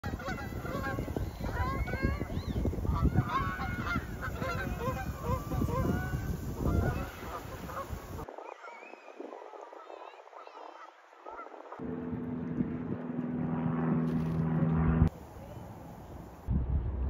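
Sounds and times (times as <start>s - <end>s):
geese honking in flight: 0.0s - 8.9s, 9.6s - 11.8s
low rumbling noise: 11.8s - 17.0s.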